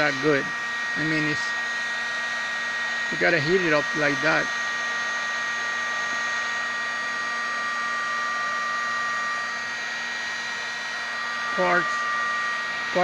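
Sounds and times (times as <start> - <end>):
heat gun blowing air with whine: 0.0 - 13.0.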